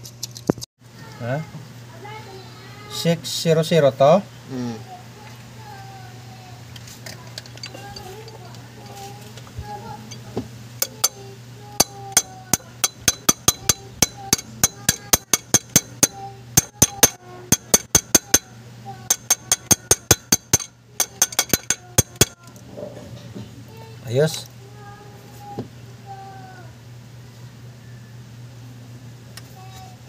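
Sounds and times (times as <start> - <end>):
faint steady hum: 0.0 - 30.0
ratchet wrench clicking: 10.8 - 11.2, 11.8 - 18.5, 19.1 - 22.4.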